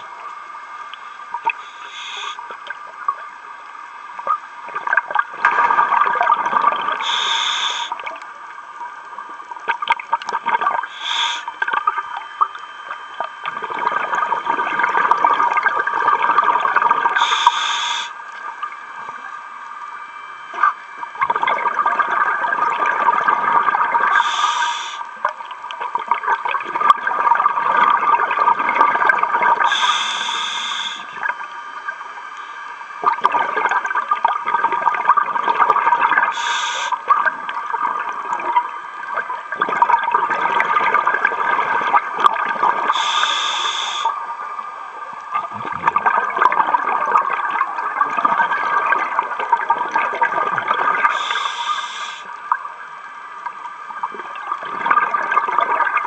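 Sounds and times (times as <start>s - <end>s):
scuba regulator inhalation hiss: 1.6s - 2.4s, 7.0s - 8.0s, 10.8s - 11.6s, 17.2s - 18.2s, 24.1s - 25.1s, 29.6s - 31.1s, 36.3s - 37.0s, 42.9s - 44.2s, 51.1s - 52.3s
exhaled bubbles gurgling: 4.1s - 32.0s, 33.0s - 56.0s.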